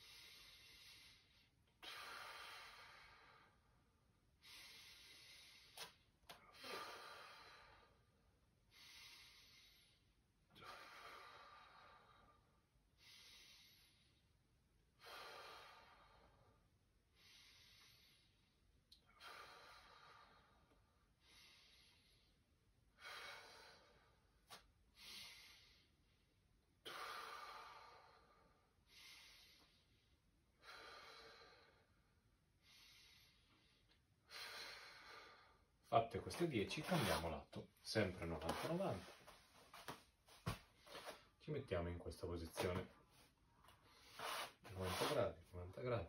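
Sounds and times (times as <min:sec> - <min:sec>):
man breathing deeply: 0:00.0 - 0:35.8.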